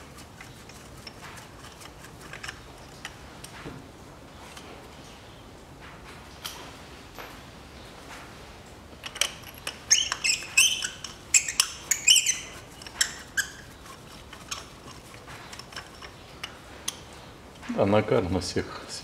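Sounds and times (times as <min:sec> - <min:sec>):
rag rubbing engine parts: 0:00.0 - 0:03.1, 0:09.3 - 0:16.9
short high squeaks: 0:09.8 - 0:14.6.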